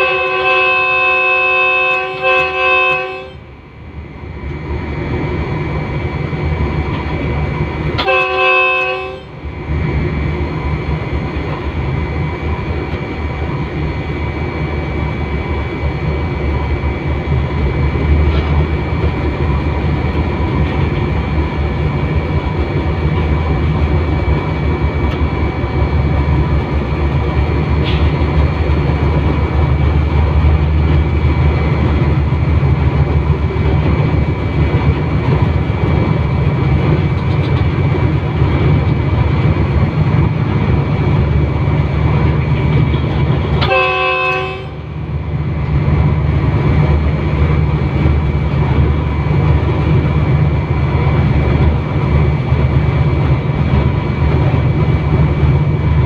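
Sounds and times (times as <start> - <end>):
train horn blast: 0.0 - 3.5, 8.0 - 9.4, 43.5 - 44.9
locomotive engine drone: 0.0 - 56.0.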